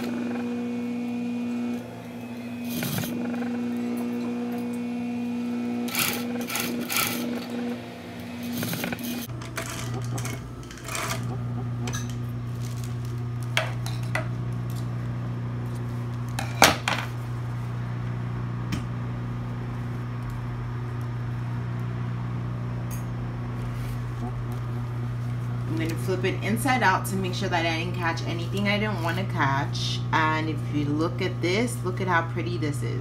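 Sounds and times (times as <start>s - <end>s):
sewing machine motor humming: 0.0s - 16.5s
sewing machine stitching: 1.6s - 4.8s, 5.7s - 11.4s.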